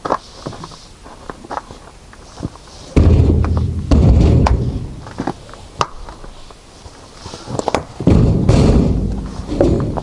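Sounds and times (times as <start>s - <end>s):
heavy thuds with low rumble: 3.0s - 5.3s, 8.0s - 10.0s.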